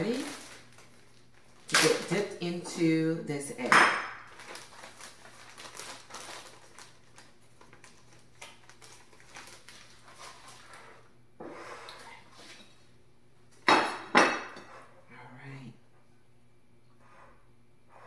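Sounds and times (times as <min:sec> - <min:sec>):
plastic bag crinkling: 0:00.0 - 0:02.7, 0:04.2 - 0:11.1.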